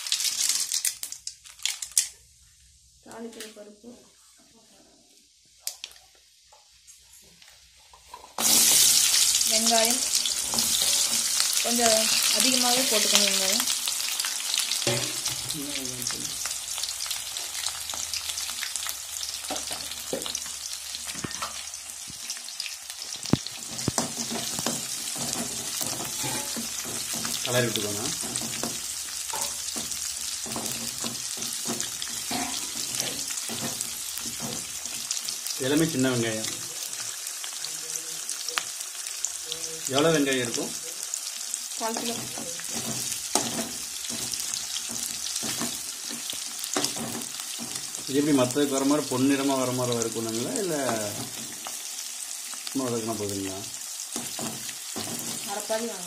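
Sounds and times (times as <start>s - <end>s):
shallots sizzling in hot oil: 0.0s - 3.9s, 5.2s - 56.0s
metal ladle scraping pan: 10.0s - 12.3s, 14.8s - 15.4s, 23.8s - 27.4s.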